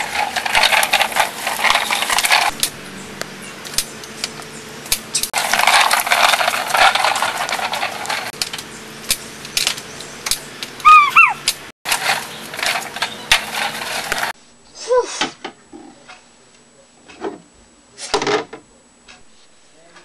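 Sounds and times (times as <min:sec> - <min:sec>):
toy lawnmower rattling on grass: 0:00.0 - 0:02.6, 0:05.2 - 0:08.6, 0:10.8 - 0:14.4.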